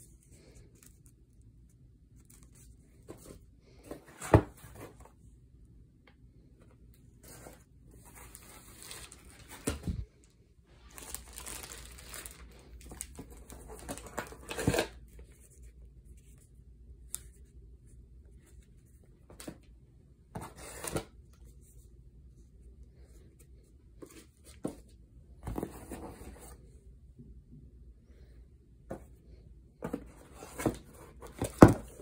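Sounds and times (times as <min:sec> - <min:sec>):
packaging tearing and crinkling: 0:10.9 - 0:15.0.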